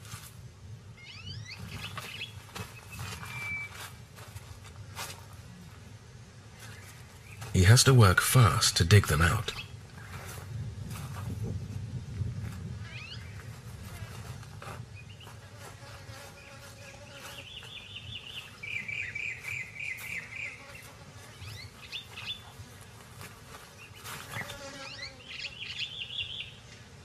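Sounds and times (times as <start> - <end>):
claws scratching in dry soil: 0.0 - 0.5, 1.6 - 5.8, 9.9 - 25.4
high chirping trills: 1.0 - 3.8, 17.4 - 20.7.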